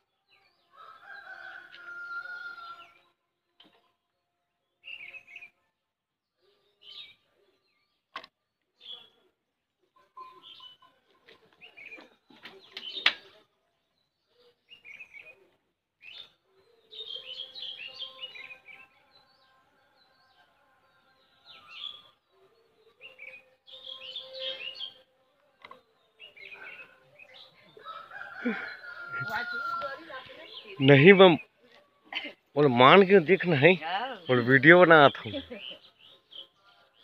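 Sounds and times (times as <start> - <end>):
small birds chirping: 9.9 - 37.0.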